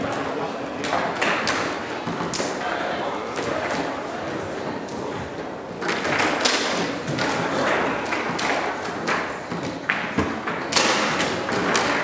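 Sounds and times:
table football clacking: 4.7s - 12.0s.

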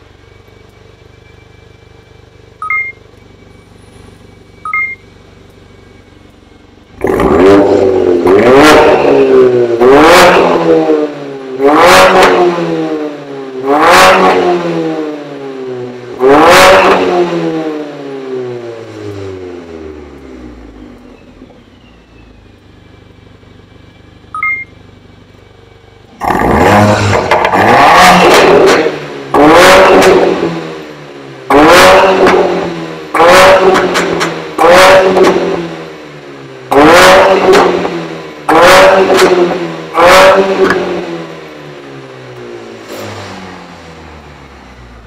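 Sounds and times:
short beep: 1.1s - 5.2s, 24.3s - 24.8s
car engine revving: 3.5s - 21.8s, 24.5s - 45.0s.

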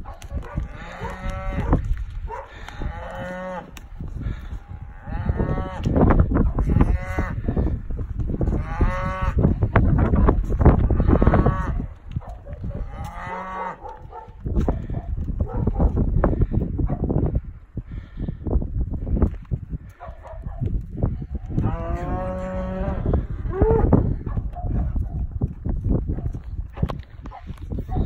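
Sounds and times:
cattle mooing: 0.6s - 3.8s, 6.6s - 7.5s, 12.8s - 13.9s, 21.6s - 23.9s.

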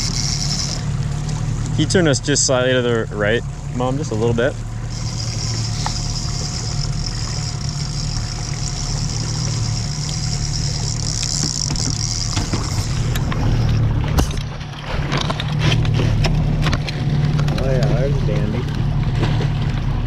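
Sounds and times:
outboard motor running: 0.0s - 20.0s
knocks and clicks: 9.0s - 17.9s.

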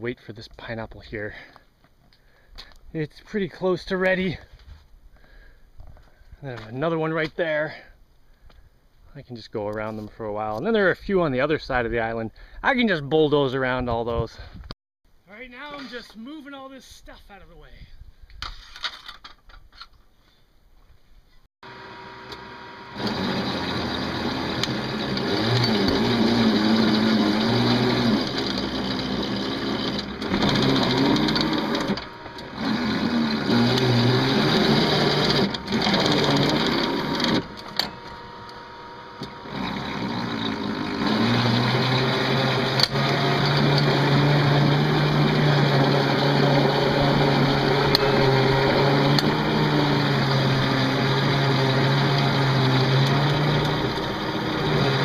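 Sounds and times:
bulldozer engine under load: 21.7s - 55.0s.

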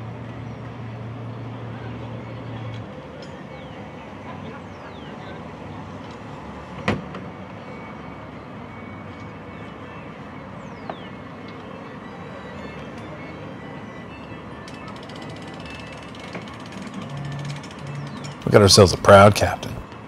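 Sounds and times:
truck engine: 14.4s - 20.0s.

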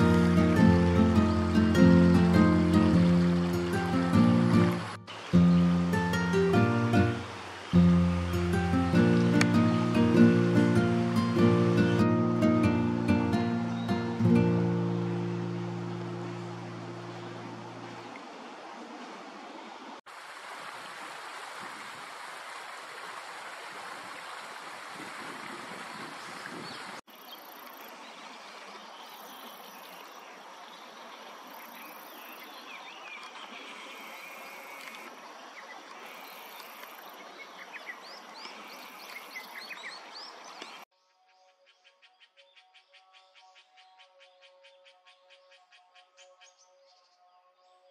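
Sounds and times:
outdoor hiss: 0.0s - 16.6s, 20.1s - 25.3s
stream water flowing: 0.0s - 40.9s.

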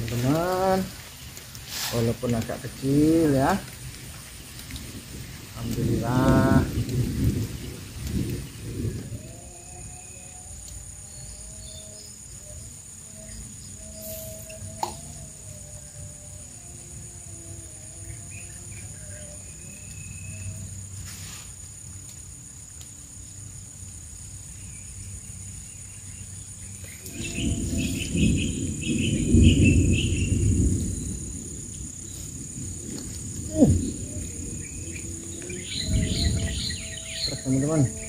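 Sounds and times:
insects droning: 0.0s - 38.0s.

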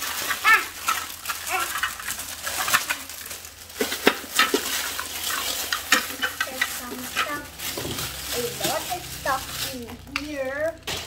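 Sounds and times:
plastic parts clicking: 0.0s - 8.8s
plastic packaging crinkling: 0.0s - 11.0s.

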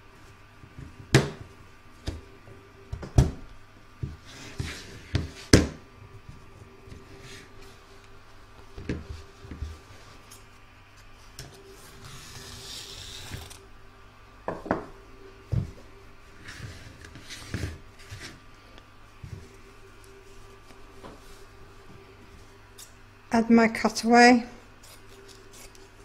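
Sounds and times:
scissors cutting: 24.8s - 25.9s.

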